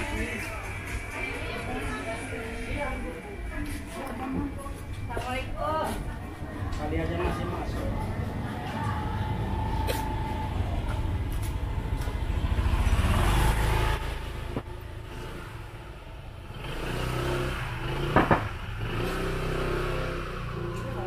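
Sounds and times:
motorbike engine running: 8.6 - 21.0.

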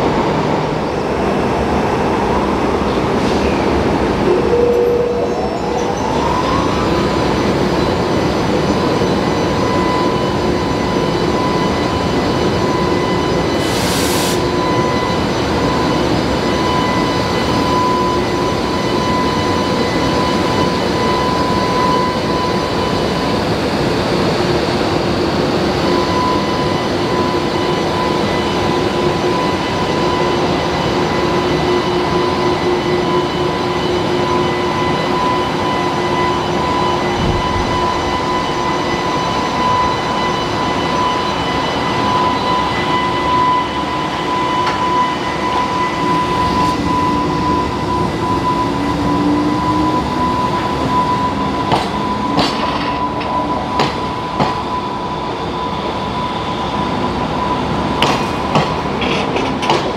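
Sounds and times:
high whine: 0.0 - 23.4
train humming: 0.0 - 59.9.

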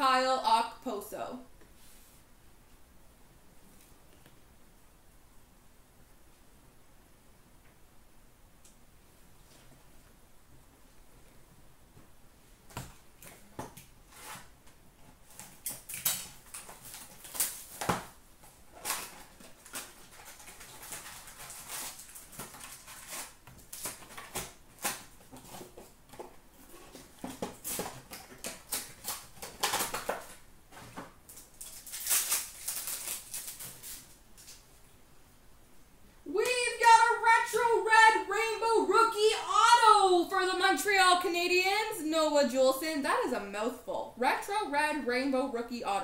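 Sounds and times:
wrappers crinkling and tearing: 15.2 - 34.6.

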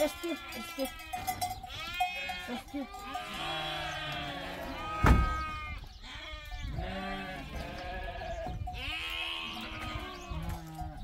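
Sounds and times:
sheep bleating: 0.0 - 11.0
sharp loud thump: 5.0 - 5.4.

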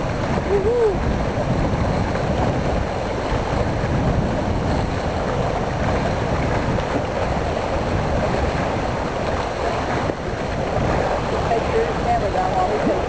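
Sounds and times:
water rushing along boat: 0.0 - 13.0
wind buffeting microphone: 0.0 - 13.0.

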